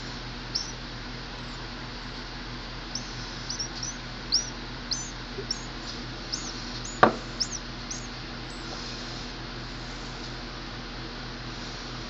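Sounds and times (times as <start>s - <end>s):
nestling bird begging chirps: 0.0s - 8.7s
steady low hum: 0.0s - 12.0s.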